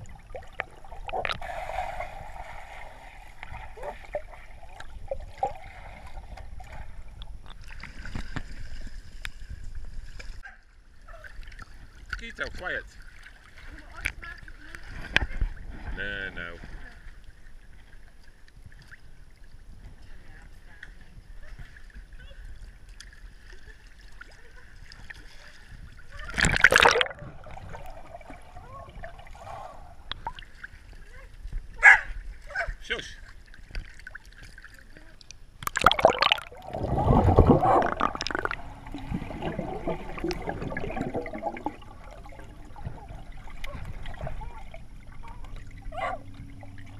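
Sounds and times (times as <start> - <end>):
muffled underwater rumble: 0.0 - 12.1, 13.6 - 32.8, 34.8 - 46.9
water bubbling and sloshing: 0.0 - 46.9
muffled underwater sound: 34.7 - 46.9.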